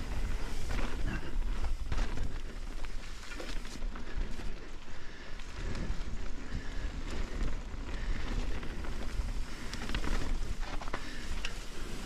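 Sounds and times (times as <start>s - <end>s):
bike clicks and rattles: 0.0s - 12.0s
tyres on dirt and leaves: 0.0s - 12.0s.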